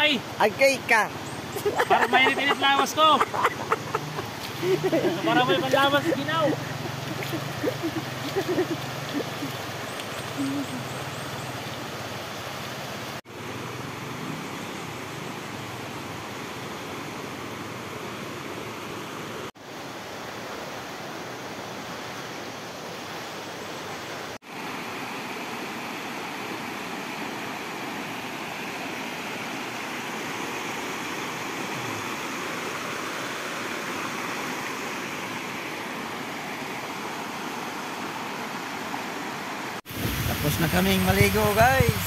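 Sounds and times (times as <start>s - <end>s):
river rapids rushing over rocks: 1.4s - 17.9s.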